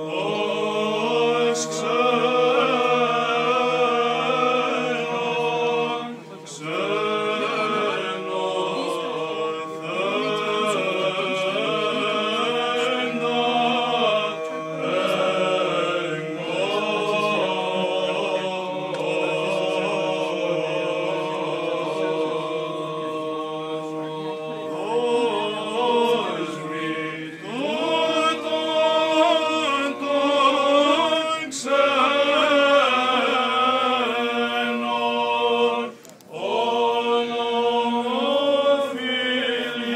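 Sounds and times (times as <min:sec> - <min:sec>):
low sustained drone voice: 0:00.0 - 0:31.2
male voices chanting: 0:00.0 - 0:39.9.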